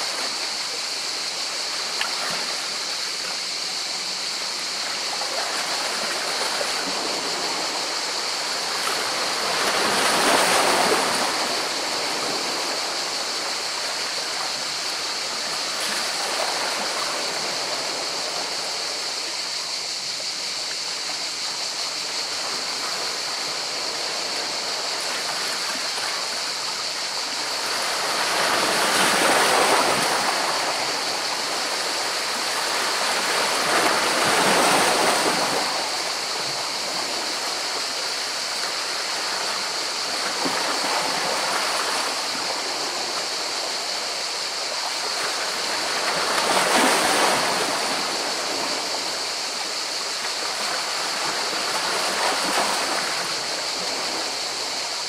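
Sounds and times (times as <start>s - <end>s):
waves breaking: 0.0s - 19.6s, 20.6s - 55.0s
sea water rushing among rocks: 0.0s - 55.0s.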